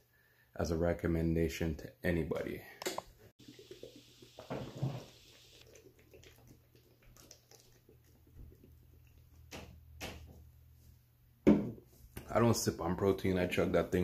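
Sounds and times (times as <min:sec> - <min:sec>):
person gulping and swallowing: 0:03.4 - 0:09.5.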